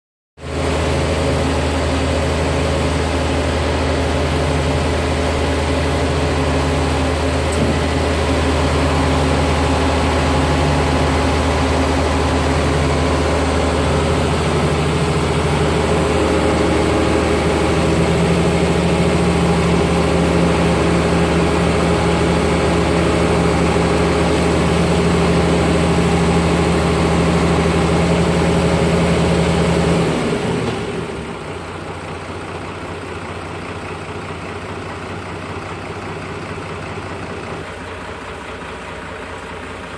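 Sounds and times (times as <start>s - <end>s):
engine deep hum: 0.4s - 39.9s.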